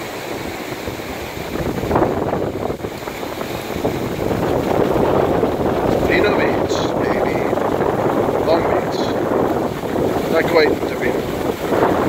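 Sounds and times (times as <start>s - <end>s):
ocean surf on a beach: 0.0s - 12.0s
wind buffeting microphone: 0.0s - 12.0s.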